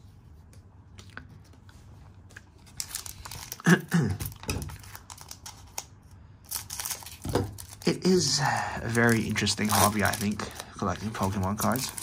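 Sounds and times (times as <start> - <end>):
foil wrapper crinkling: 2.4 - 12.0
scissors snipping wrapper: 8.8 - 12.0.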